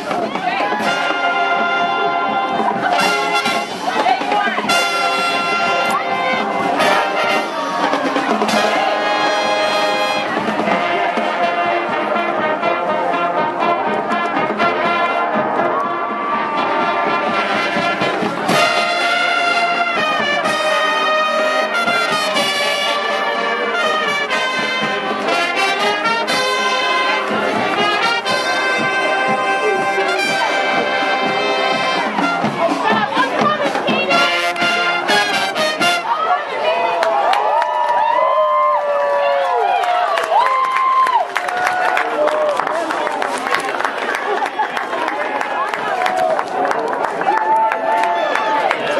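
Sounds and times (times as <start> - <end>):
marching band playing: 0.0 - 37.6.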